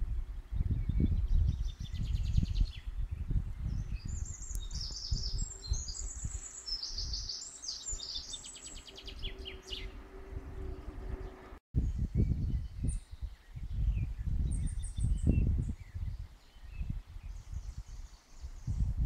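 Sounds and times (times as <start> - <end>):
songbirds singing: 0.0 - 19.0
low rumble: 8.8 - 12.7.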